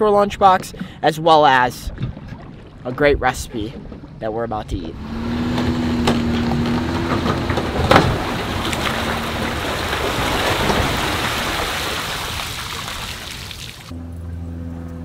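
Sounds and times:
engine hum: 4.8 - 15.0
water pouring and splashing: 6.3 - 13.9.

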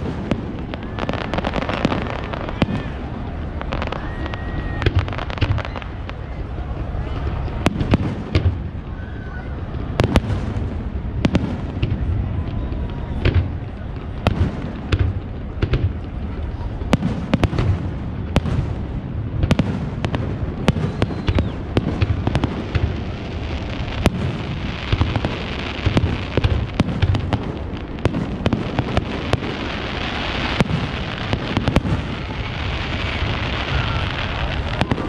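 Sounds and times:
firework hiss: 14.3 - 35.0.

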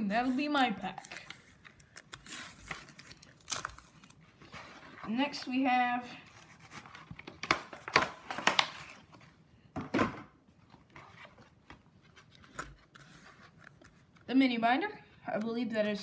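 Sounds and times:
packaging crinkling and tapping: 6.7 - 8.9.

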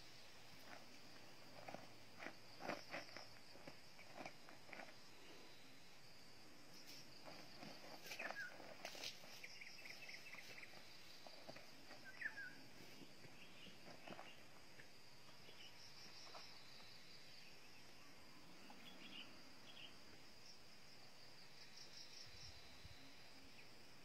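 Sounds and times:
insects droning: 0.0 - 24.0
bird chirps: 8.0 - 8.6, 12.0 - 12.6.

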